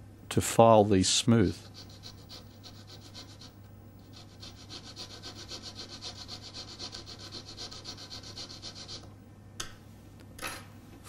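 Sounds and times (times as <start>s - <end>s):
rasp filing plastic: 1.6s - 9.1s.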